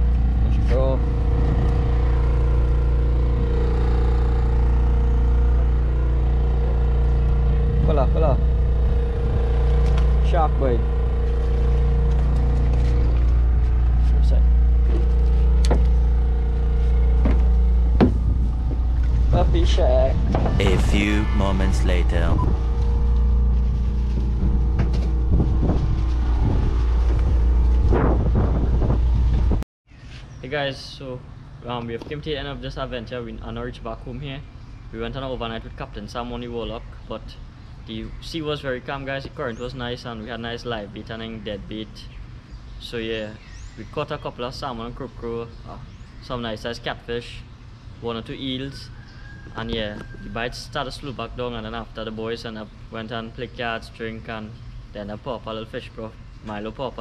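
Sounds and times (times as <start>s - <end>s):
boat engine humming: 0.0s - 29.6s.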